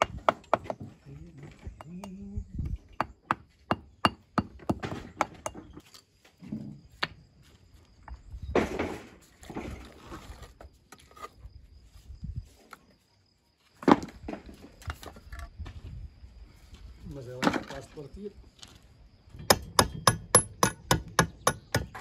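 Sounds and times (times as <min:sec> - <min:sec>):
rough scraping on stone: 0:09.6 - 0:11.4
hammer striking stone: 0:19.4 - 0:22.0.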